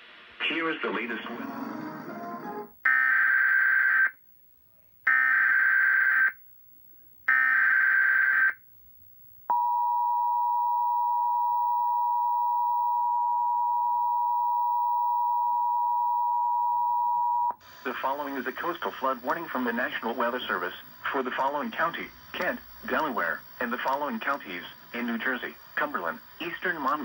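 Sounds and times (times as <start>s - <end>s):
screeching data tones: 17.7s - 27.0s.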